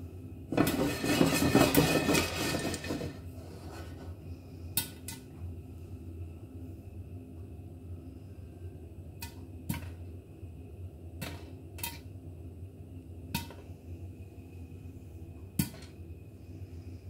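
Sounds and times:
popcorn popping in a pan: 0:00.5 - 0:03.3, 0:09.1 - 0:10.0, 0:11.1 - 0:12.1, 0:13.3 - 0:13.7, 0:15.6 - 0:15.9.

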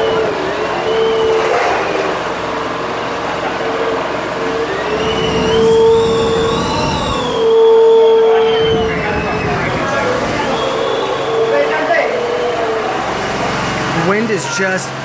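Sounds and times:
wind roaring: 0:04.0 - 0:13.4
wind whistling through building: 0:04.0 - 0:13.9.

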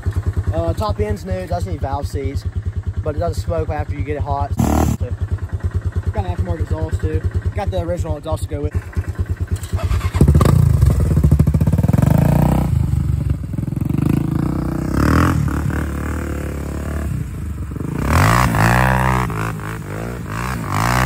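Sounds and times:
atv engine revving: 0:04.6 - 0:07.7, 0:08.7 - 0:21.0.

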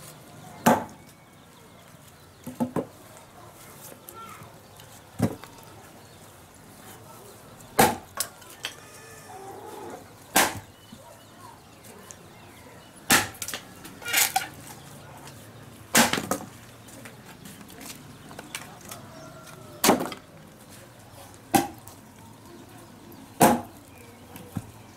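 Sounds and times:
axe chopping wood: 0:00.6 - 0:00.9, 0:07.8 - 0:08.2, 0:10.3 - 0:10.7, 0:13.1 - 0:13.7, 0:15.9 - 0:16.5, 0:19.8 - 0:20.2, 0:21.5 - 0:21.8, 0:23.4 - 0:23.7.

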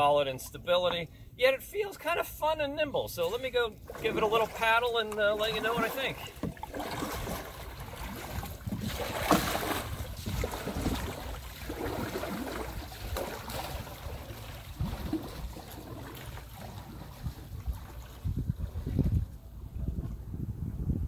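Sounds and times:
kayak paddle splashing: 0:03.1 - 0:19.2.

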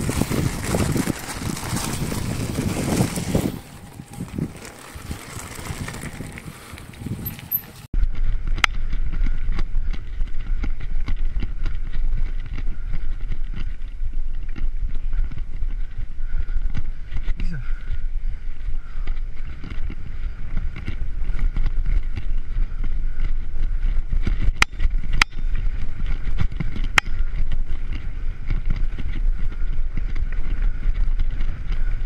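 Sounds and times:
handlebars rattling and knocking: 0:00.0 - 0:07.9
bicycle tyres on gravel: 0:00.0 - 0:32.0
deep rumble: 0:00.0 - 0:32.0
wind buffeting microphone: 0:00.0 - 0:32.0.

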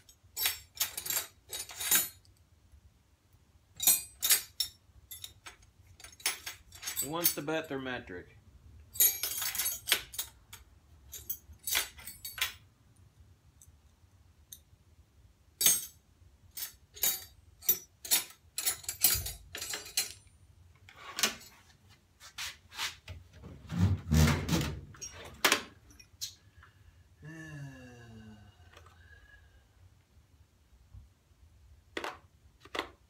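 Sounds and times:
metal tools clinking: 0:00.0 - 0:02.3, 0:03.8 - 0:07.8, 0:08.9 - 0:12.6, 0:15.6 - 0:20.3.

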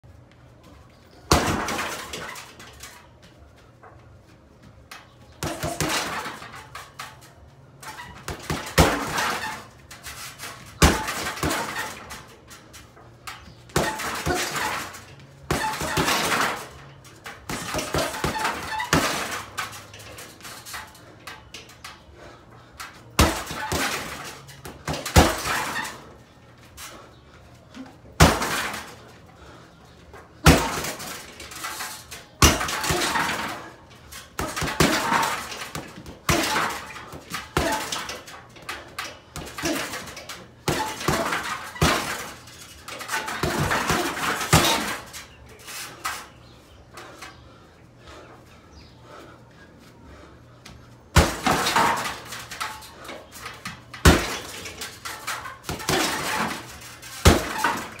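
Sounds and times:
metal stand and chains rattling: 0:04.9 - 0:49.2, 0:51.2 - 0:58.0
kicks and punches on heavy bag: 0:05.4 - 0:06.8, 0:07.8 - 0:12.3, 0:13.7 - 0:21.0, 0:23.1 - 0:26.1, 0:28.1 - 0:29.0, 0:30.4 - 0:31.8, 0:32.4 - 0:45.2, 0:51.1 - 0:58.0.

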